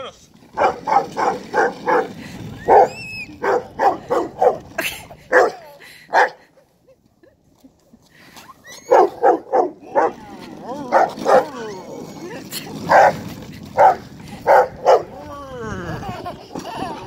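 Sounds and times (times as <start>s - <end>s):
dog barking: 0.6s - 2.1s, 2.7s - 4.6s, 5.3s - 6.4s, 8.9s - 10.2s, 12.9s - 13.2s, 13.8s - 15.1s.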